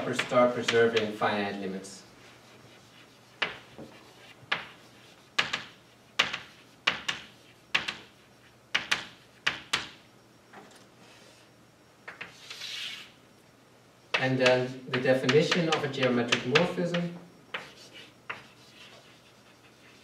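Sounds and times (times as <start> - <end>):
chalk tapping on blackboard: 2.7 - 8.1, 14.4 - 20.0.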